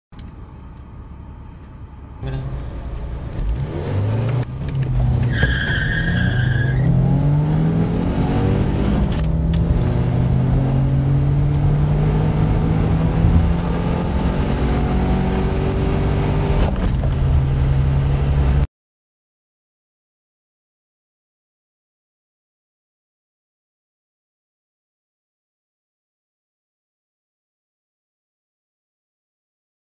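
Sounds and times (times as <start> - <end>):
car engines accelerating: 0.2 - 18.7
tyre squeal: 5.0 - 7.0.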